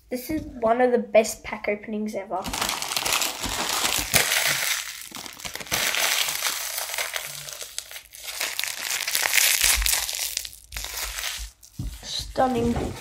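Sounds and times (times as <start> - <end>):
plastic wrapper crinkling: 2.4 - 13.0.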